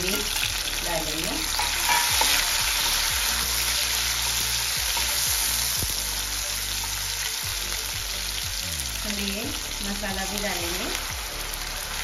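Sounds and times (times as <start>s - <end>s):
vegetables sizzling in hot oil: 0.0s - 12.0s
spatula scraping pan: 1.1s - 5.6s.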